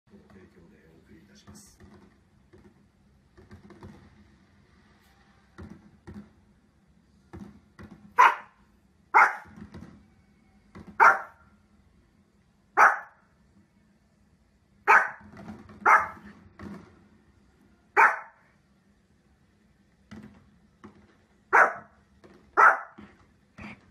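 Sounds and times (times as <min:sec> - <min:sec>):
small dog barking: 0:08.2 - 0:09.6, 0:11.0 - 0:11.4, 0:12.8 - 0:13.2, 0:14.8 - 0:16.3, 0:18.0 - 0:18.4, 0:21.5 - 0:22.0, 0:22.6 - 0:23.0.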